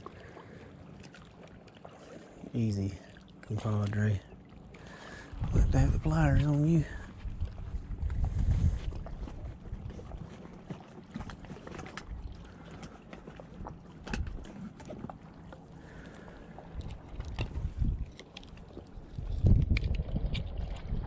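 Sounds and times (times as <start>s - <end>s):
wind buffeting microphone: 5.2s - 11.3s, 16.8s - 18.2s, 18.9s - 21.0s.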